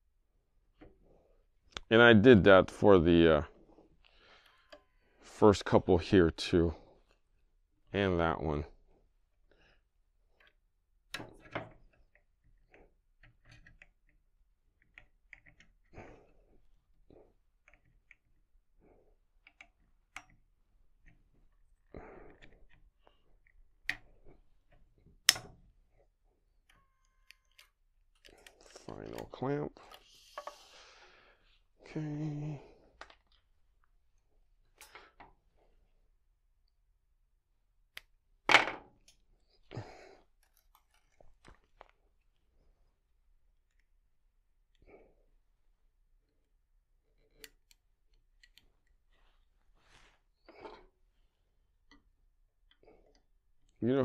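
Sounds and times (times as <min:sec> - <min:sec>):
click: 0:37.9 - 0:38.1.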